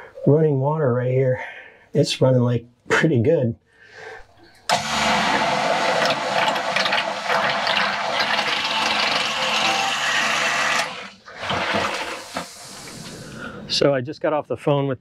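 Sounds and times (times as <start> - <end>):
bilge pump running: 4.7 - 13.2.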